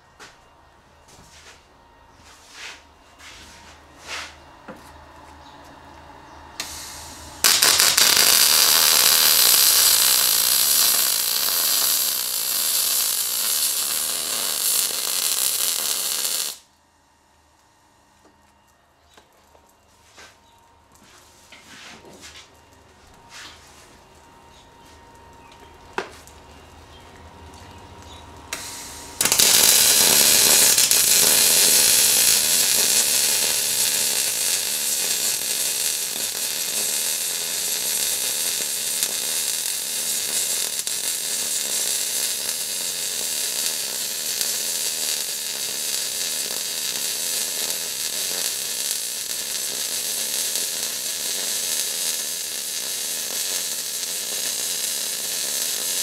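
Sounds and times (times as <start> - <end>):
welding arc crackling: 6.6 - 16.7, 27.4 - 56.0.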